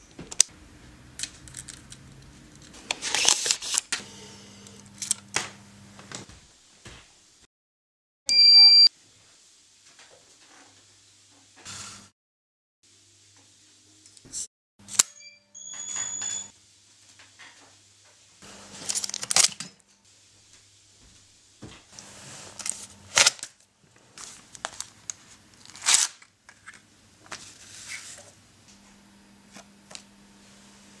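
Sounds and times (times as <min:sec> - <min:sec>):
film tabs rasping pulls and snaps: 0:24.6 - 0:26.7.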